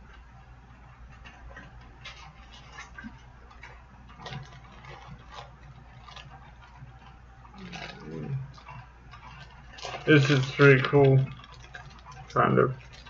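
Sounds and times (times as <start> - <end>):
steady low hum: 0.0 - 13.0
packaging rustling: 1.1 - 13.0.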